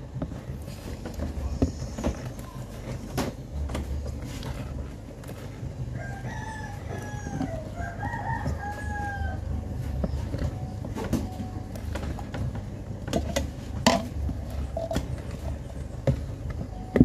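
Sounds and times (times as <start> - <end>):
rooster crowing: 5.9 - 9.9.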